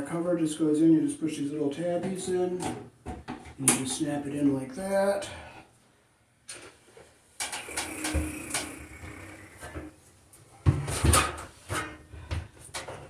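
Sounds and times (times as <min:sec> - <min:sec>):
knocks and clicks from handling things: 0:02.6 - 0:03.8, 0:07.4 - 0:09.9.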